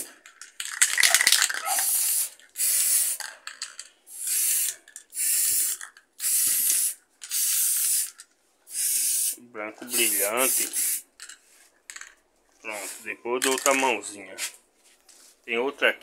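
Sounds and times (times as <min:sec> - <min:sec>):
spray paint can bursts: 0:00.6 - 0:11.1.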